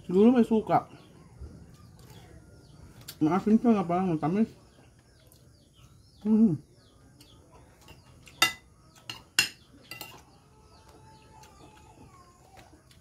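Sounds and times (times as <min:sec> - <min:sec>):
tableware clinking: 0:07.8 - 0:10.3.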